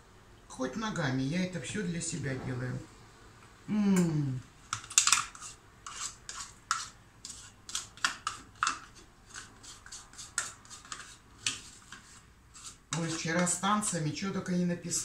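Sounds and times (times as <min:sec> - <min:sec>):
utensil scraping plastic tub: 0:05.0 - 0:14.1.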